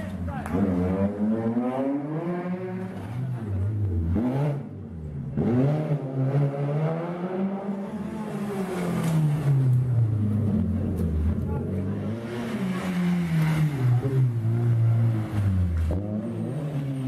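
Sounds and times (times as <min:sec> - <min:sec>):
rally car engines revving past: 0:00.0 - 0:17.0.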